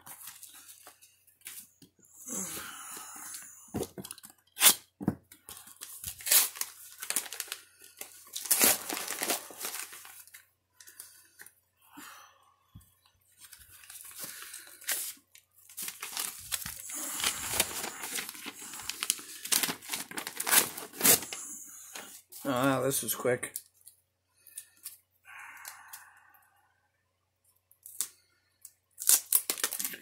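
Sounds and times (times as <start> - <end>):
envelopes being torn open: 4.0 - 10.4, 13.5 - 21.5, 29.0 - 30.0.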